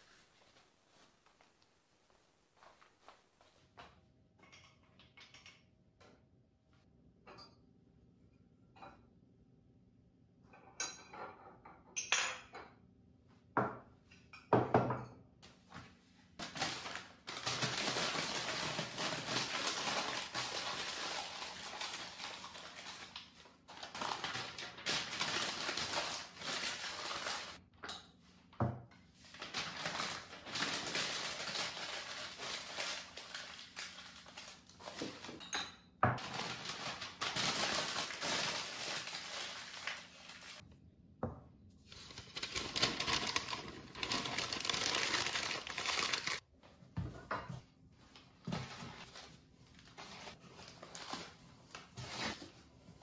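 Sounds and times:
ceramic mugs knocking and clinking: 13.6s - 15.2s
packing paper rustling: 16.4s - 27.6s, 29.2s - 35.4s, 36.2s - 40.6s, 41.9s - 46.4s, 48.5s - 52.6s.

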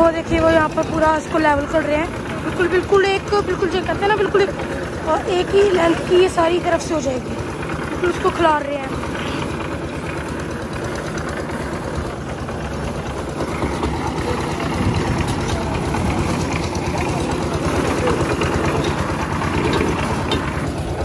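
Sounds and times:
concrete mixer engine running: 0.0s - 21.0s
hoe scraping wet concrete: 4.6s - 21.0s.

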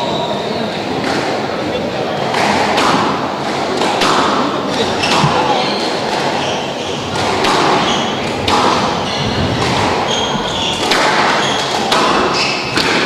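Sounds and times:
squash ball knocks: 2.3s - 6.4s, 7.1s - 10.0s, 10.8s - 13.0s
shoes squeaking on wooden floor: 4.8s - 8.4s, 9.0s - 12.8s.

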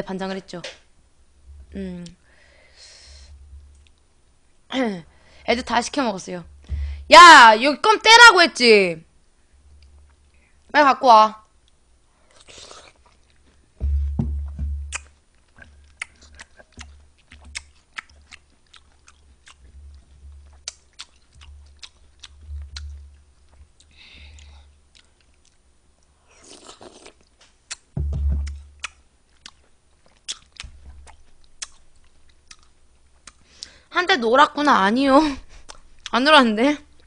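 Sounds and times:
soft low thump: 6.5s - 7.1s, 13.8s - 15.0s, 22.4s - 23.2s, 28.0s - 28.7s
person chewing fruit: 11.6s - 33.8s, 35.5s - 36.2s.

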